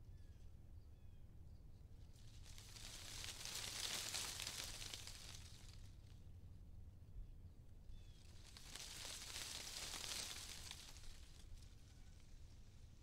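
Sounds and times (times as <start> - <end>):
wind rustling foliage: 2.2 - 6.2, 8.1 - 13.0
faint bird chirps: 7.9 - 8.6.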